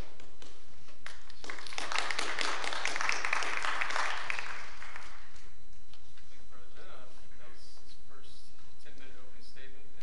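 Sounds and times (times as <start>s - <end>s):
audience applauding: 1.0s - 5.4s.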